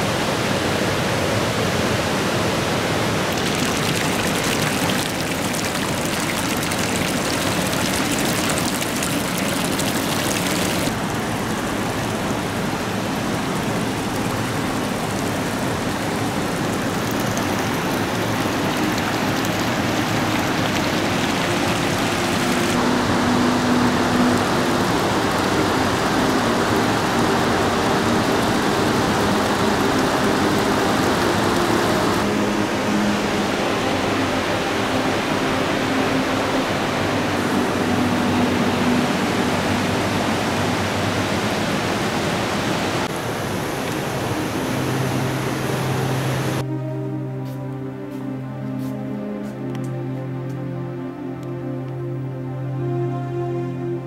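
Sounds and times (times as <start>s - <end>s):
rushing water: 0.0s - 54.0s.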